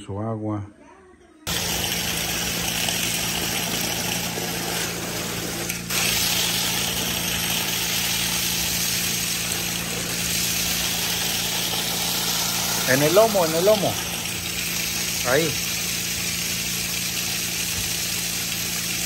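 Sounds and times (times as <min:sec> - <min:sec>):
water pump running: 0:01.5 - 0:19.0.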